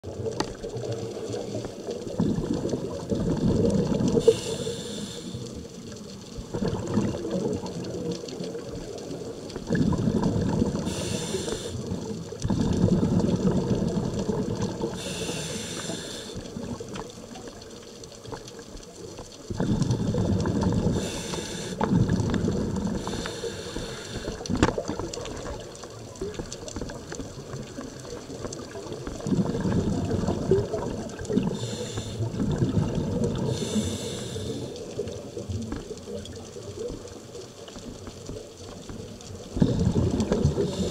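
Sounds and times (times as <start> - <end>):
exhaust bubbles gurgling: 0.0 - 18.6, 19.4 - 40.9
regulator inhale hiss: 4.2 - 5.7, 10.8 - 12.0, 14.9 - 16.5, 20.9 - 21.9, 22.9 - 24.7, 31.4 - 32.4, 33.4 - 35.0, 39.7 - 40.9.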